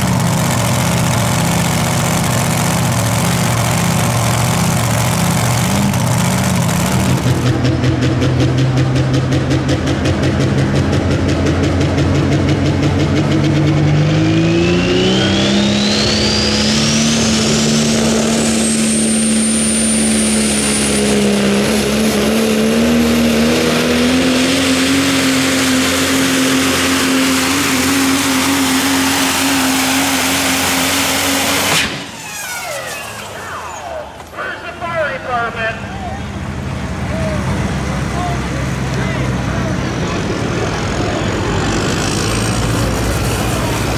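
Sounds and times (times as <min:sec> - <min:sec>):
truck engine at full throttle: 0:00.0 - 0:43.9
high whine: 0:26.3 - 0:36.2.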